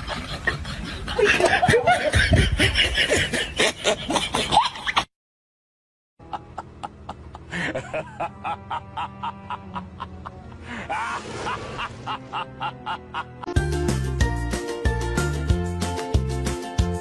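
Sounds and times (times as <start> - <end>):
upbeat background music: 11.4 - 17.0.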